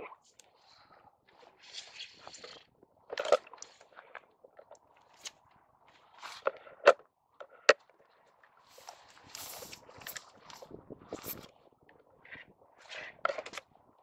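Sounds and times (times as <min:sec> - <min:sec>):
soft rustling against jacket: 0:08.6 - 0:11.6.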